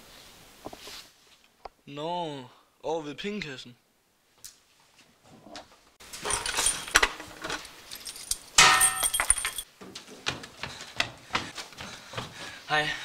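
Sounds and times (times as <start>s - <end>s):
small hard objects clinking: 6.0s - 9.7s
jangling clatter: 6.1s - 9.7s.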